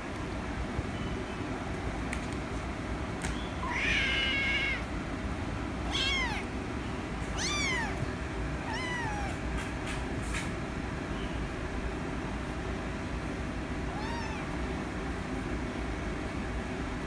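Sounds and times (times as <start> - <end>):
steady low hum: 0.0 - 17.0
kitten meowing: 3.6 - 4.9, 5.8 - 6.5, 7.2 - 9.4, 13.9 - 14.6.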